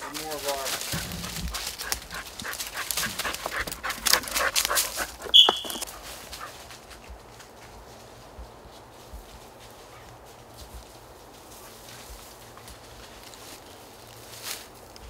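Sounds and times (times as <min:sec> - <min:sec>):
dry leaves crunching underfoot: 0:00.0 - 0:15.0
short high-pitched tone: 0:05.4 - 0:05.8.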